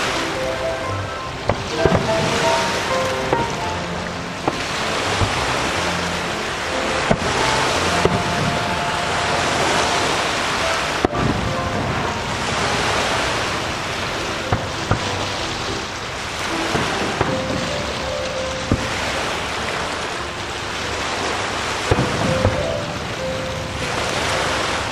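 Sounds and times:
fireworks rumble and crackle: 0:01.0 - 0:19.7, 0:21.6 - 0:24.9
fireworks sharp bangs: 0:01.4 - 0:15.8, 0:16.4 - 0:18.1, 0:18.7 - 0:19.6, 0:21.8 - 0:24.4.

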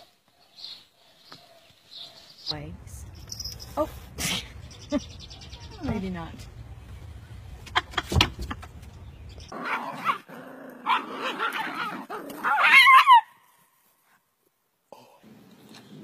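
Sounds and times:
dog barking and yelping: 0:09.5 - 0:13.4.

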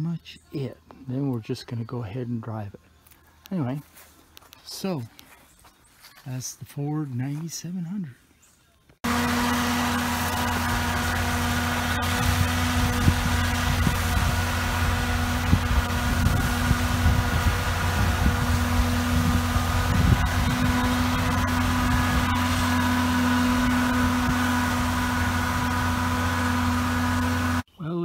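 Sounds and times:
tractor diesel engine running: 0:09.0 - 0:27.7.

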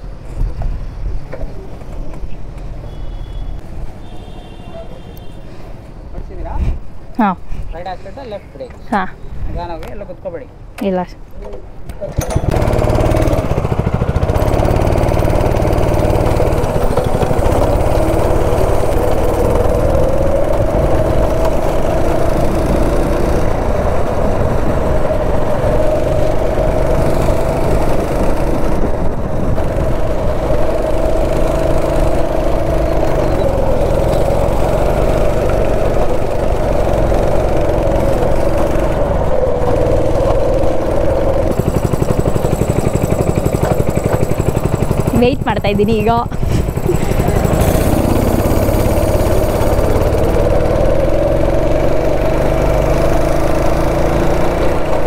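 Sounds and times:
go-kart engine running: 0:11.4 - 0:55.0.

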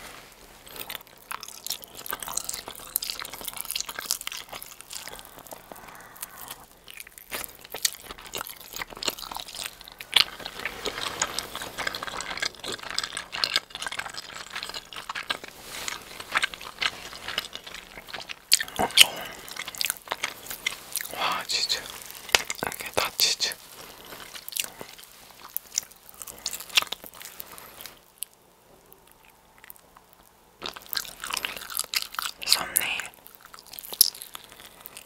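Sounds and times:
crunchy chewing: 0:00.5 - 0:35.0
wet mouth sounds: 0:00.7 - 0:28.1.

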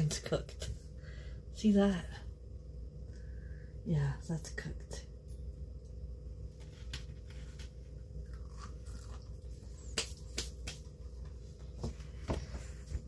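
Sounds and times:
steady low hum: 0:00.0 - 0:13.0
breaded chicken crunching: 0:06.9 - 0:09.9.

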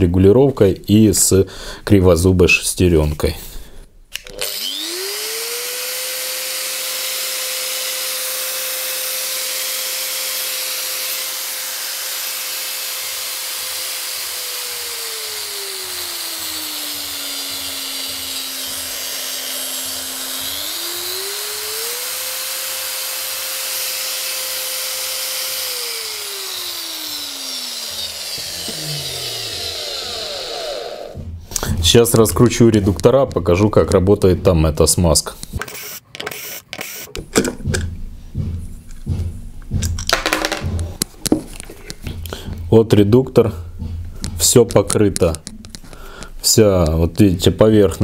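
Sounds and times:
angle grinder whining: 0:04.2 - 0:31.4, 0:35.6 - 0:37.3.

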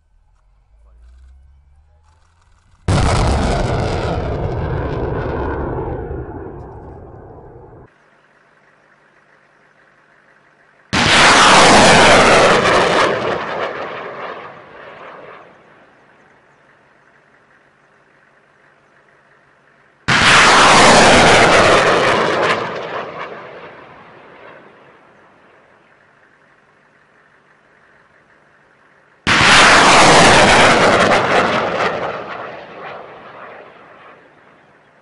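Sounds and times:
rocket motor roar: 0:00.0 - 0:07.9, 0:10.9 - 0:15.7, 0:20.0 - 0:24.1.

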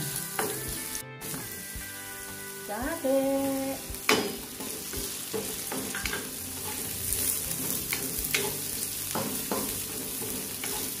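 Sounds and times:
food sizzling in oil: 0:00.0 - 0:11.0
spatula scraping and tapping pan: 0:04.0 - 0:11.0.

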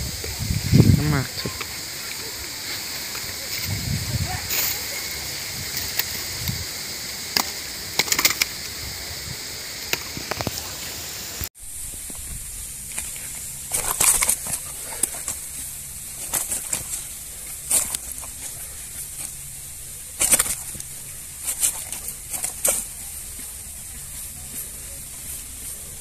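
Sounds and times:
steady high hiss: 0:00.0 - 0:26.0
fish thrashing on dry grass: 0:13.6 - 0:23.2.

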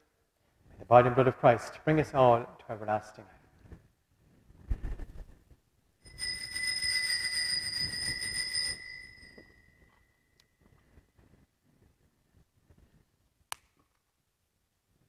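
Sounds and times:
altar bells ringing: 0:06.0 - 0:10.4.

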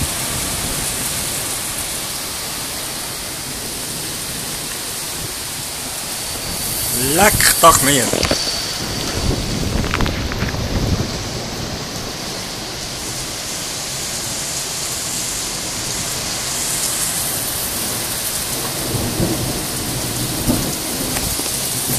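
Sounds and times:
heavy rain pouring: 0:00.0 - 0:21.9
low rumble of thunder: 0:18.5 - 0:21.9.

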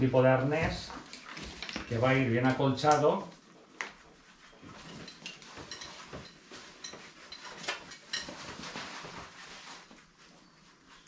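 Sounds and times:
harness straps rustling: 0:02.9 - 0:11.0.

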